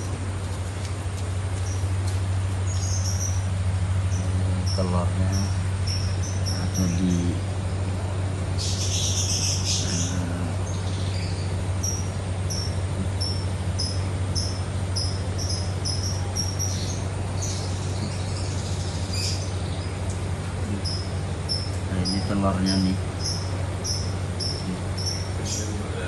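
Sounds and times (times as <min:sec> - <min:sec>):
steady low hum: 0:00.0 - 0:26.0
cricket chirping: 0:02.7 - 0:07.4, 0:08.6 - 0:19.6, 0:20.7 - 0:25.8.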